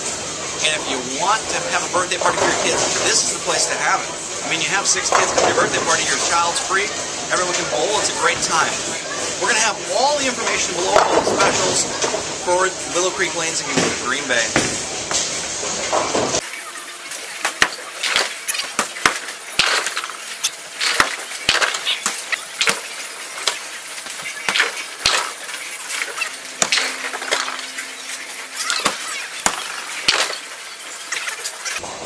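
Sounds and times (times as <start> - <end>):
bowling pins crashing: 4.8 - 12.9, 17.4 - 32.0.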